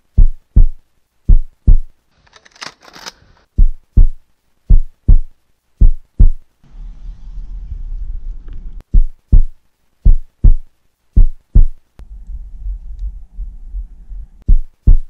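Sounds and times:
heartbeat thumps: 0.0 - 1.9, 3.5 - 6.4, 8.8 - 15.0
low rumble: 5.8 - 9.5, 11.2 - 14.5.

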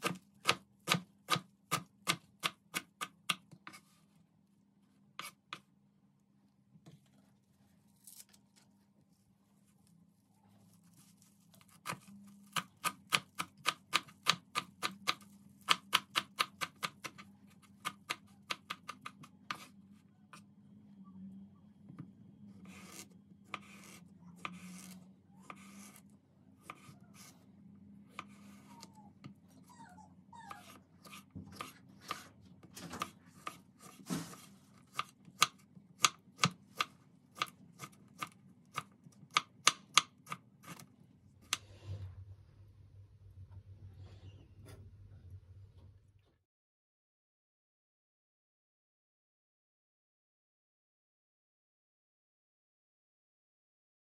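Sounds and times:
knife chopping on wooden board: 0.0 - 3.8.

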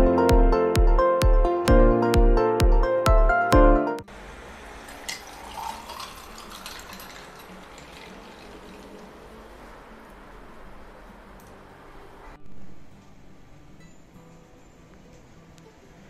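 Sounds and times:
liquid pouring into a glass: 4.8 - 9.6.

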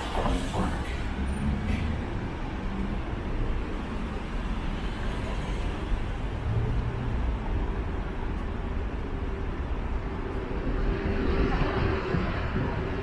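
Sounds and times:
engines rumbling: 0.0 - 13.0
passing vehicles: 0.0 - 13.0.

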